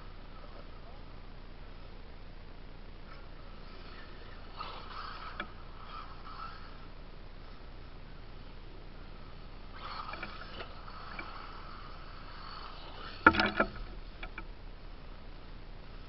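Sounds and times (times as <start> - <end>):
electric motors whining: 3.2 - 7.6, 9.0 - 14.4
small knocks: 13.0 - 14.5.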